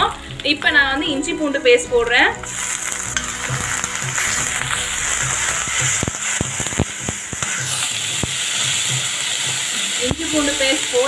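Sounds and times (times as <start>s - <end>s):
food sizzling in hot oil: 0.0s - 11.0s
metal spatula scraping pan: 2.4s - 11.0s.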